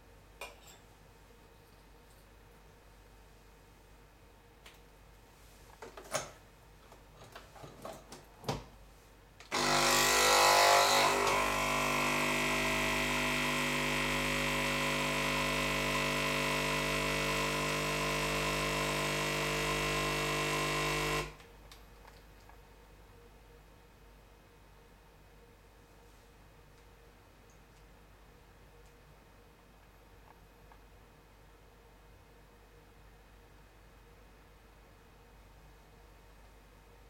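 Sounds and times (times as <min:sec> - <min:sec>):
espresso machine pump buzzing: 0:09.5 - 0:21.4.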